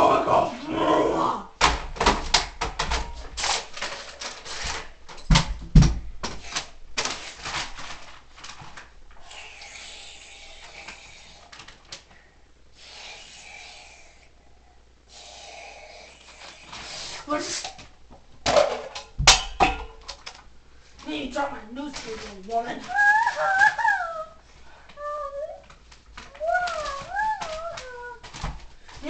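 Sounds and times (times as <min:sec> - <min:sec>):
rustling: 0:02.8 - 0:09.2, 0:20.0 - 0:29.0.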